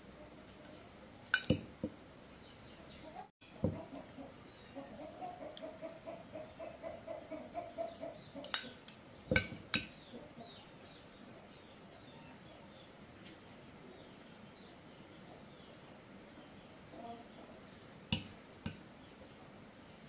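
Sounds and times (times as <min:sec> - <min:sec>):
chicken clucking: 0:02.7 - 0:08.8, 0:16.8 - 0:17.8
faint high chirping: 0:09.8 - 0:17.9.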